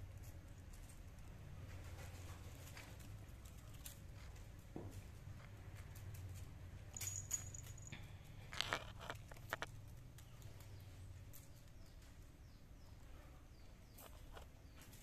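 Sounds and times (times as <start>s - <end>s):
thin high ring: 6.9s - 8.1s.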